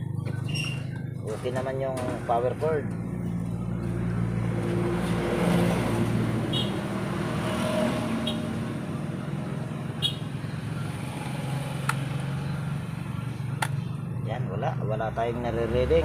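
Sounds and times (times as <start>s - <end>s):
vehicle engine running: 0.0s - 7.4s.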